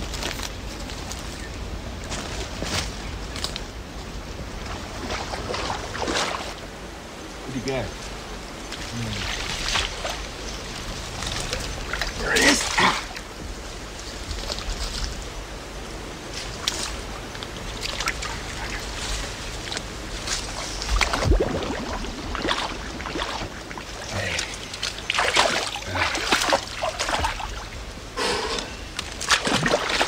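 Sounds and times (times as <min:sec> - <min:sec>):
creek water splashing: 0:04.6 - 0:06.7, 0:08.6 - 0:15.5, 0:16.1 - 0:30.0.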